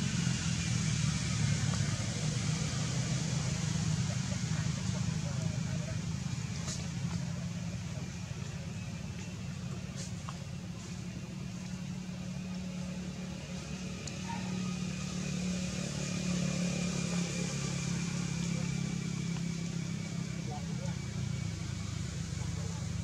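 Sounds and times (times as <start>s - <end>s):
low motor-like hum: 0.0s - 23.0s.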